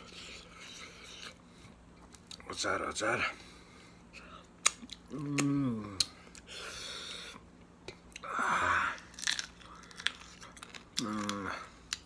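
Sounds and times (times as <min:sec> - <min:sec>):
man chewing with lip smacks: 0:00.0 - 0:02.5, 0:04.1 - 0:06.6, 0:07.3 - 0:08.3.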